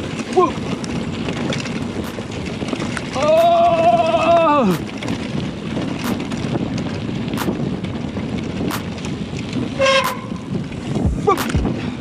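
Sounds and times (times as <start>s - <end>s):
bike tyres rolling on dirt: 0.0s - 12.0s
short horn toot: 9.8s - 10.4s.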